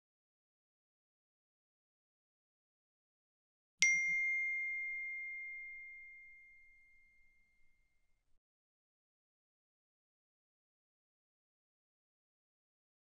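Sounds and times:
bell-like ding: 3.8 - 8.1.

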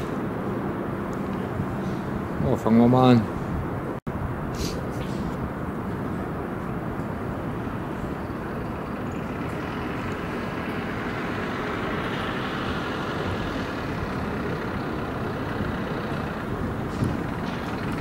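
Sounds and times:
outdoor traffic noise: 0.0 - 18.0.

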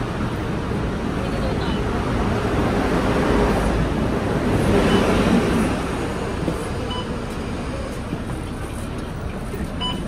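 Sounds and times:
bus engine running: 0.0 - 10.0
road traffic: 0.0 - 10.0
card reader beeps: 6.9 - 7.2, 9.8 - 10.0.

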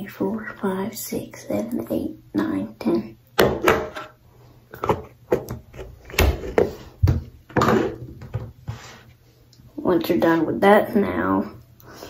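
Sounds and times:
irregular knocks and bumps: 4.8 - 8.8
handling and rubbing noise: 7.6 - 9.2.

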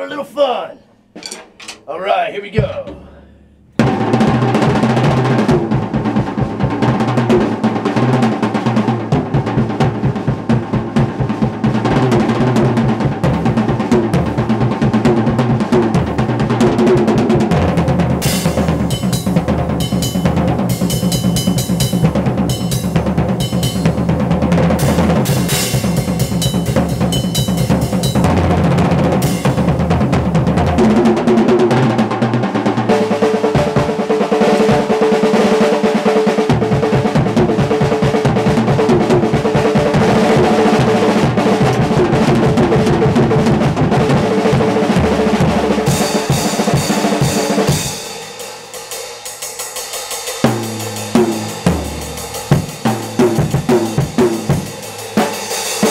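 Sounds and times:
drum solo with sticks: 0.0 - 55.9
bass drum: 1.2 - 8.4, 36.5 - 46.0, 50.4 - 55.3
cymbals: 45.9 - 55.9.

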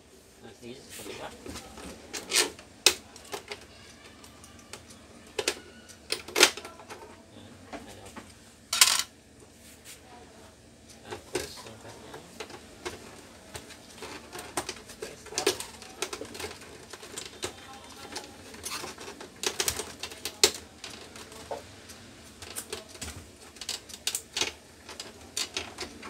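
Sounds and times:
plastic printer parts clicking: 12.4 - 21.5.

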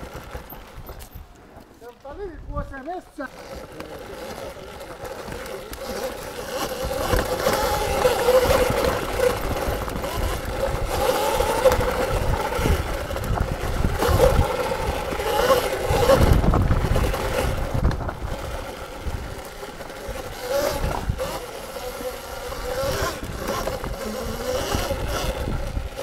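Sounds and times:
electric motor whine: 3.2 - 26.0
wind buffeting microphone: 5.7 - 26.0.

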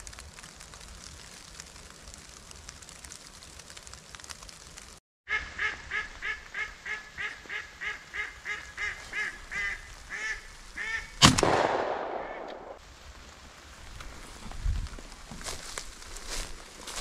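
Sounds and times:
duck quacking loudly: 5.3 - 11.1
shotgun shot echoing: 11.2 - 12.8.

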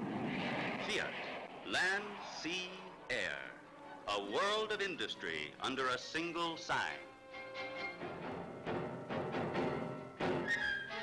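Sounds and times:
orchestral film music: 2.2 - 11.0.

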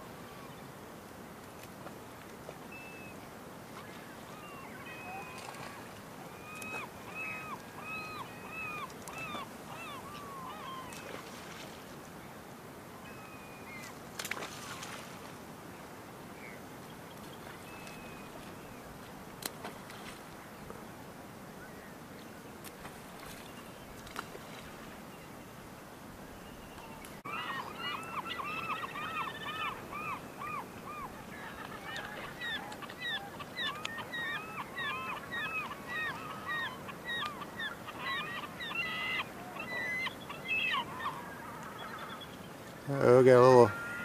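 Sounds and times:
faint steady hiss: 0.0 - 44.0
flock of birds calling: 3.8 - 11.3, 26.8 - 44.0.

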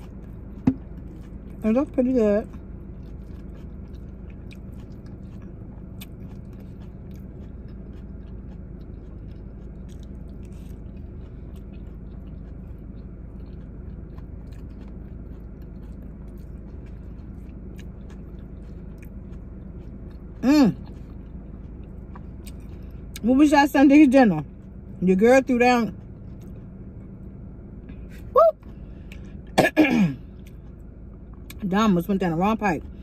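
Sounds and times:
person chewing lettuce: 0.0 - 23.2, 25.9 - 27.3
low hum inside car: 0.0 - 33.0.

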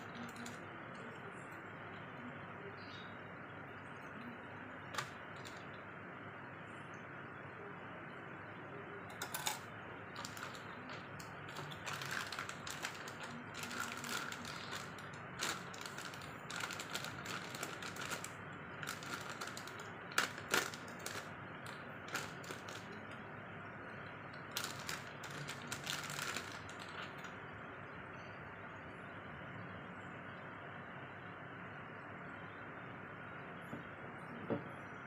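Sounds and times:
plastic bags crinkling: 0.0 - 0.6, 4.9 - 5.7, 10.2 - 23.2, 24.3 - 27.3.

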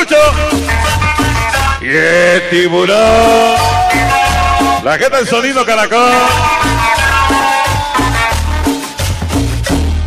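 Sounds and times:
shaken percussion rhythm: 0.0 - 1.8, 3.0 - 5.0, 6.1 - 10.0
bass line: 0.0 - 10.0
cumbia music: 0.0 - 10.0.

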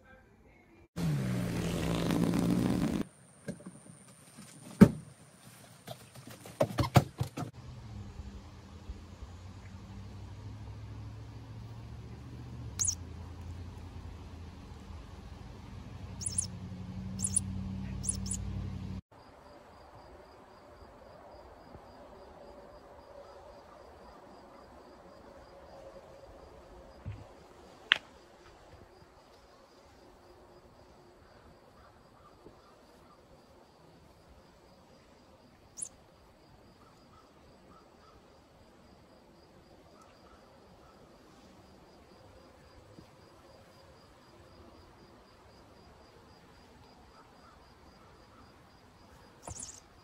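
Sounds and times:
insects chirping: 11.6 - 15.3, 16.2 - 18.5, 19.1 - 50.0
short sharp high chirp: 12.8 - 13.0, 16.2 - 16.5, 17.2 - 18.4, 49.5 - 49.8
high electronic squeak: 16.2 - 16.5, 17.2 - 17.4, 18.0 - 18.4
high-pitched insect drone: 16.2 - 16.5, 17.2 - 18.4, 49.5 - 49.8.

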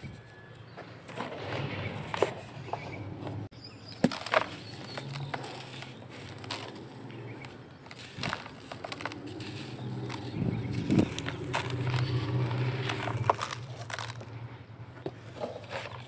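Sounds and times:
charcoal crunching and snapping: 3.8 - 16.0
powder trickling: 3.8 - 16.0.

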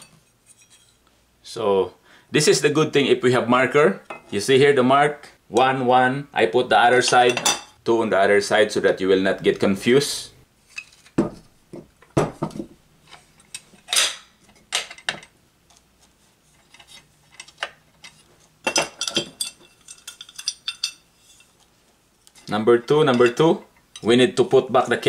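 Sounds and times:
metal parts clinking: 16.7 - 21.5.

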